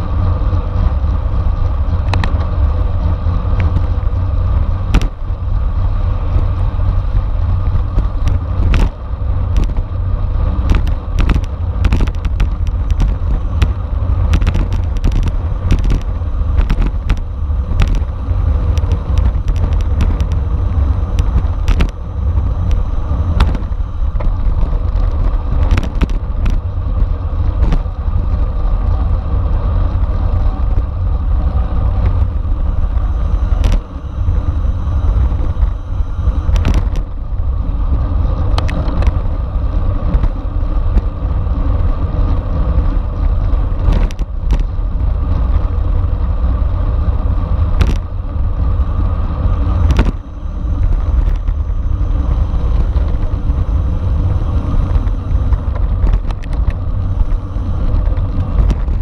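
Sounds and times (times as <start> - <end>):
wind rumbling on microphone: 0.0 - 59.0
sharp clicks and knocks: 4.9 - 5.2, 7.7 - 9.9, 10.6 - 22.0, 22.6 - 27.0, 33.6 - 33.9, 36.5 - 37.1, 43.8 - 44.8, 47.7 - 48.1, 49.8 - 50.2, 54.6 - 59.0.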